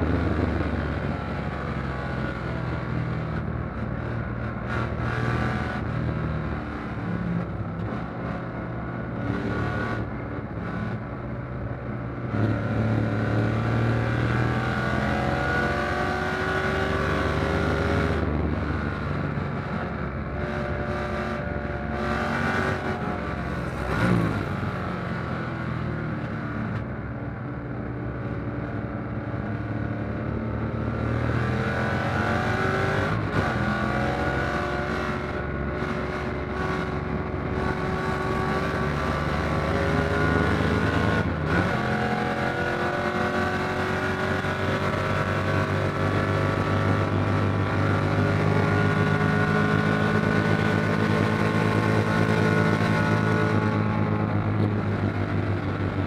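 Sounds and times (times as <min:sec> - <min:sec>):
race car engine accelerating: 0:30.3 - 0:55.4.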